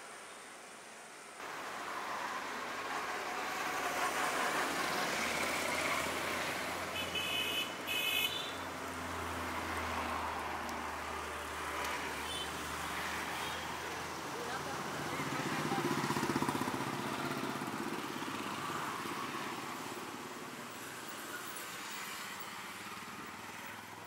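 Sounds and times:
vehicles passing close by: 0.1s - 24.0s
vehicle horn honks: 7.0s - 8.6s.

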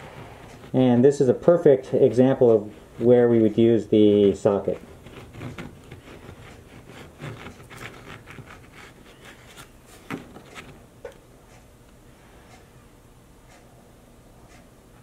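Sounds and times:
plastic welder scratching and clicking: 4.2s - 11.2s.

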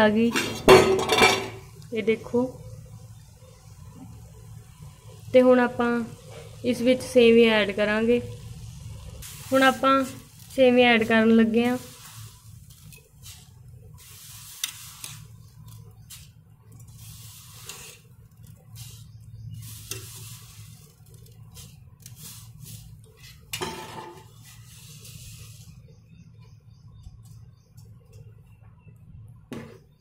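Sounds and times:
pans clattering: 0.3s - 1.7s, 23.3s - 24.3s.

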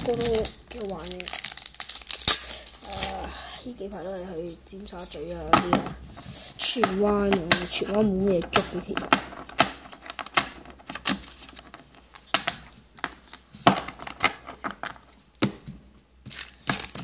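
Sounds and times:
foil pack crinkling: 0.0s - 5.8s, 16.2s - 17.0s.

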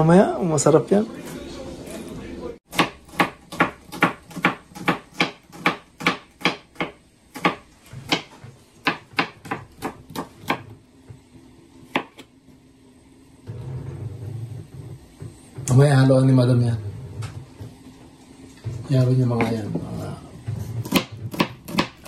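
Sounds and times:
knife chopping on cutting board: 2.7s - 10.8s, 11.8s - 12.3s, 19.3s - 22.0s.

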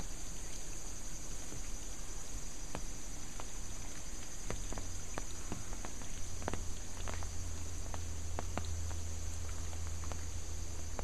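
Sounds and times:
water rushing from wall: 0.0s - 11.0s
water spattering drips: 0.0s - 11.0s.

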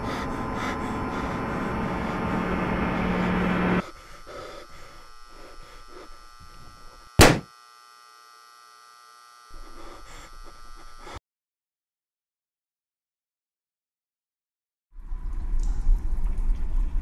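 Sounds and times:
sharp loud thud: 7.2s - 7.5s.

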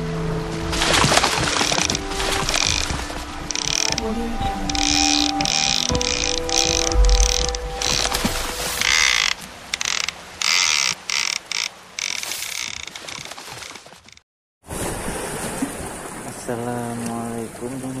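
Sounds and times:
water noise: 0.0s - 18.0s
wind: 0.0s - 18.0s
fishing reel clicking and whirring: 1.5s - 4.1s, 4.7s - 13.8s.

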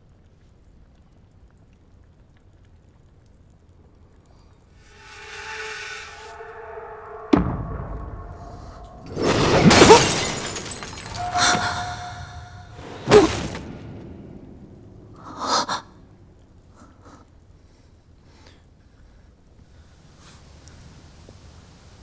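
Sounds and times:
sharp hit: 4.8s - 14.4s
debris scattering: 7.3s - 15.2s
glass shattering: 9.0s - 13.7s.

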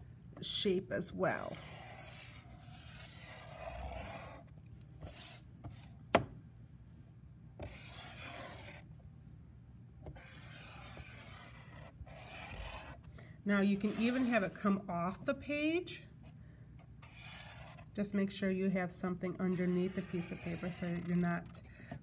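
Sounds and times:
marker rubbing across paper: 1.4s - 5.9s, 7.6s - 8.8s, 10.2s - 13.1s, 13.7s - 14.6s, 17.0s - 17.9s, 19.4s - 21.3s.

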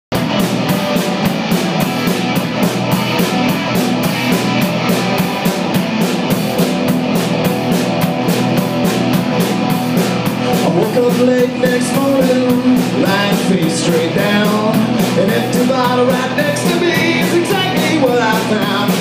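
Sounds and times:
drum kit with cymbal beat: 0.1s - 19.0s
electric bass: 0.1s - 19.0s
electric guitar: 0.1s - 19.0s.

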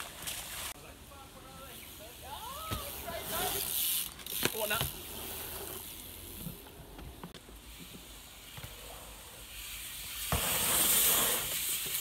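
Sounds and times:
tyres hissing on dirt: 7.6s - 12.0s.

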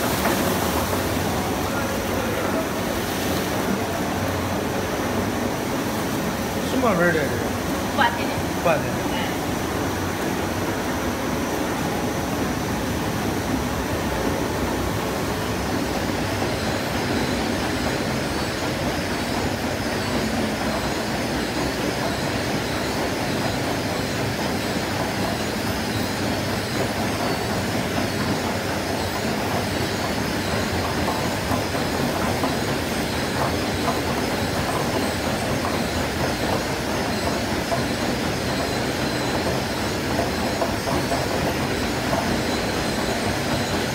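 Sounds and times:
conveyor belts and food machinery: 0.0s - 43.9s.

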